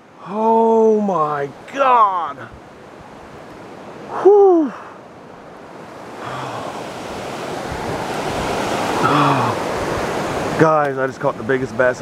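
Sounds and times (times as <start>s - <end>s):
wind on microphone: 2.4s - 10.6s
short low grunts: 9.0s - 9.6s.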